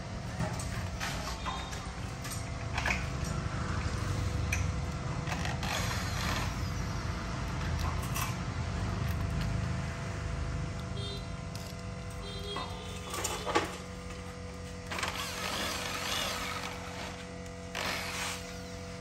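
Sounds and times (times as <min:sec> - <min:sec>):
electric drill drilling into metal: 0:05.3 - 0:06.9, 0:14.9 - 0:18.8.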